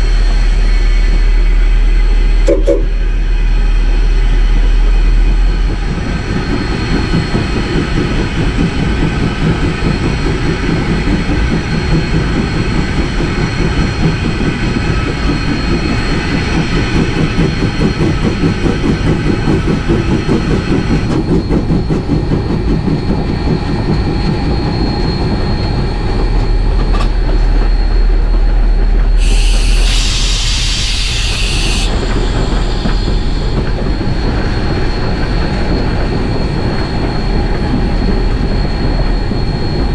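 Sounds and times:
steam hissing: 0:29.1 - 0:36.0.

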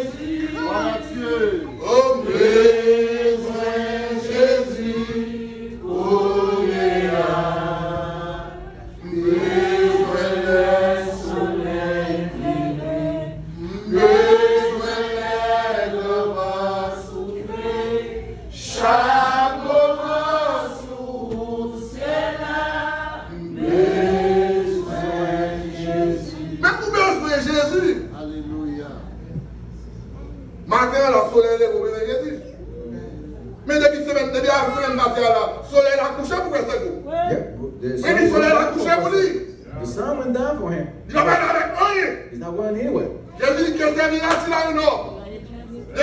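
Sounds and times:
group of people singing: 0:00.0 - 0:27.5.

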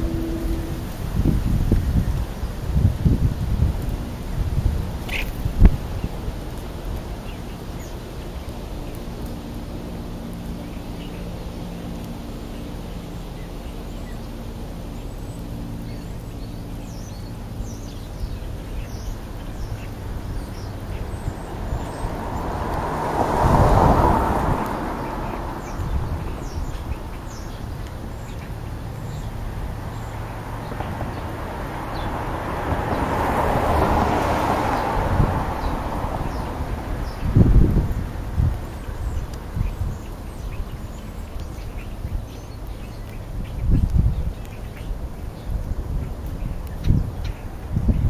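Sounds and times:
steady low hum: 0:00.0 - 0:22.8
vehicles passing: 0:00.0 - 0:48.0.

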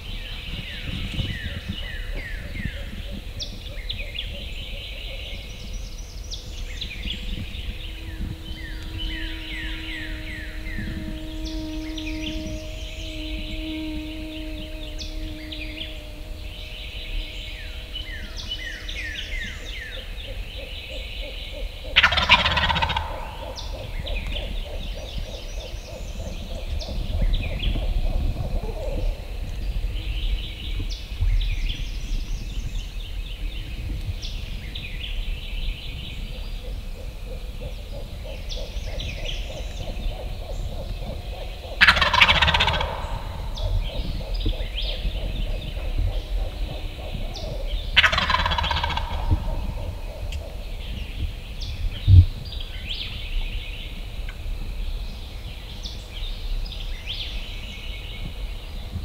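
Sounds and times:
songbirds chirping: 0:00.0 - 0:59.0
turkey gobbling: 0:21.9 - 0:24.2, 0:41.8 - 0:50.6.

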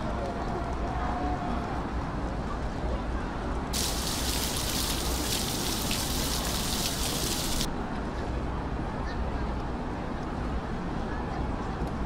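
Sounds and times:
fountain water splashing: 0:03.8 - 0:07.7.

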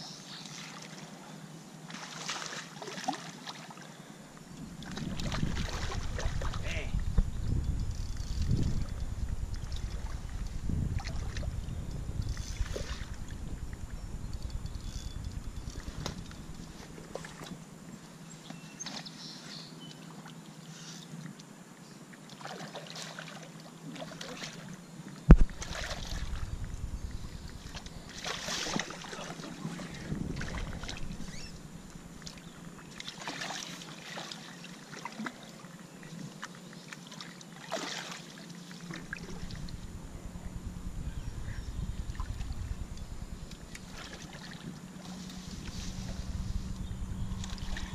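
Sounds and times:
wind rumble on microphone: 0:04.5 - 0:17.6, 0:25.3 - 0:32.8, 0:39.0 - 0:47.9.

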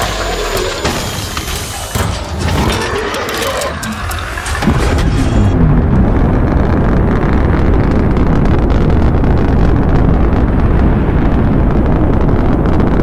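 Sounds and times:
rocket thrust rumble: 0:03.8 - 0:13.0.

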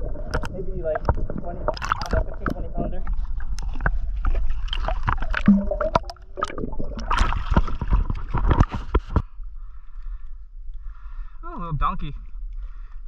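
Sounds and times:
fish splashing at the surface: 0:04.6 - 0:08.6.

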